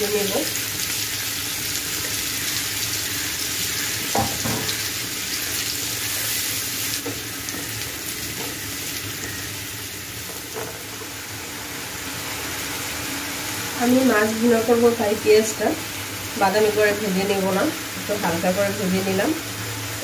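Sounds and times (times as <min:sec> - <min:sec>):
onions sizzling in oil: 0:00.0 - 0:20.0
spatula knocking on pan: 0:04.1 - 0:04.8.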